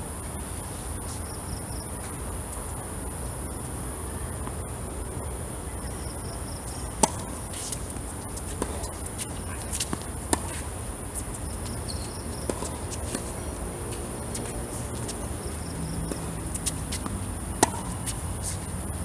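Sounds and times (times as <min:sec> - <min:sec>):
tennis ball struck by racket: 0:06.2 - 0:10.7, 0:12.1 - 0:13.4, 0:14.0 - 0:18.6.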